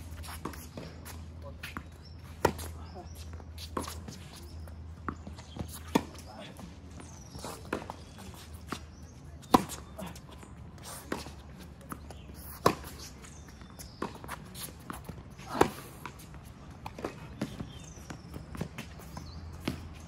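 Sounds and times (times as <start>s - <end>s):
tennis ball bouncing: 0.2s - 20.0s
distant racket hits: 5.0s - 20.0s
racket hitting tennis ball: 7.3s - 10.2s, 10.9s - 17.9s.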